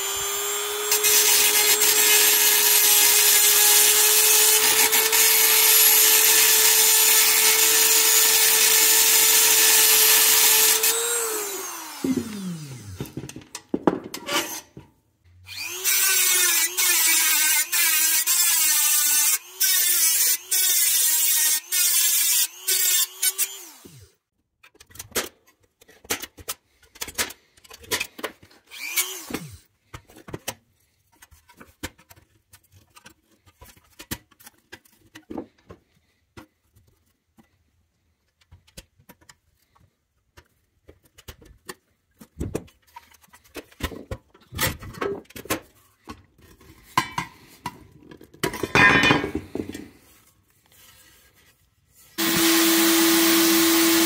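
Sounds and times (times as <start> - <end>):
rotary tool grinding metal: 0.0 - 13.0, 15.5 - 24.1, 52.2 - 54.0.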